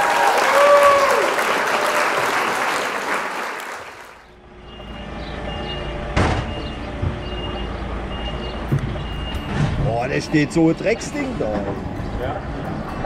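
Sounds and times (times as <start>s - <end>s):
truck diesel engine droning: 4.2s - 13.0s
reversing alarm beeping: 4.4s - 11.4s.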